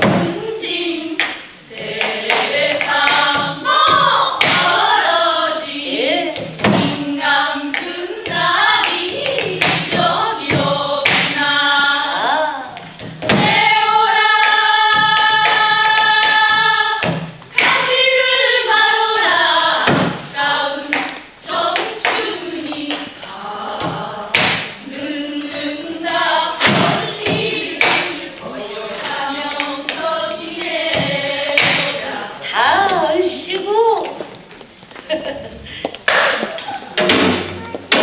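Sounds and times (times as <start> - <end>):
women singing folk song: 0.0 - 33.4
drum strokes: 12.8 - 32.2.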